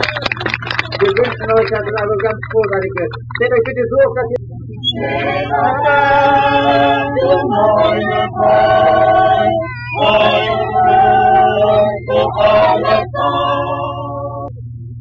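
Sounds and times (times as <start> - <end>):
steady low hum: 0.0 - 15.0
choir singing held chords: 4.8 - 14.5.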